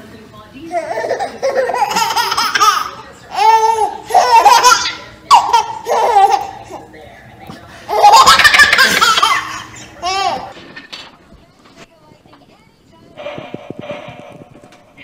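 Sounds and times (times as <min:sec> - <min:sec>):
baby laughing: 0:00.7 - 0:06.8, 0:07.9 - 0:10.5.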